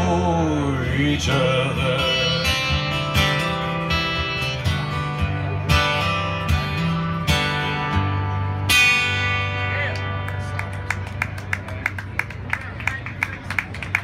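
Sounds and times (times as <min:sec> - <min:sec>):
acoustic guitar strummed chords: 0:00.0 - 0:10.8.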